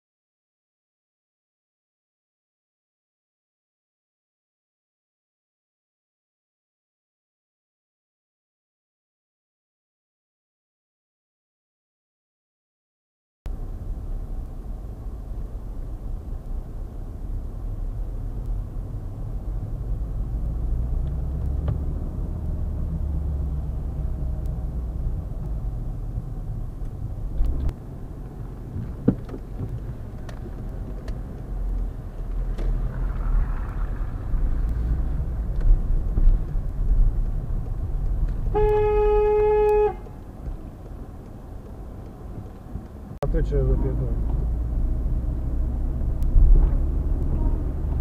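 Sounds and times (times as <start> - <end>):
engine and tyre rumble: 13.5 - 48.0.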